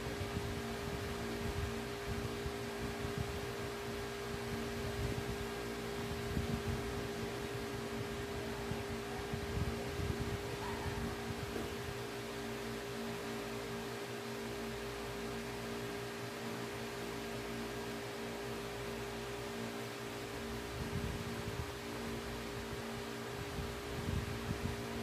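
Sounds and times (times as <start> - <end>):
steady machine hum with hiss: 0.0 - 25.0.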